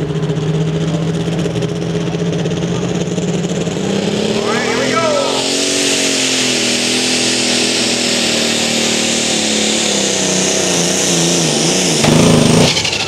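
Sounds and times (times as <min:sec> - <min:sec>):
tractor engine at high revs: 0:00.0 - 0:13.0
hissing rush: 0:03.8 - 0:13.0.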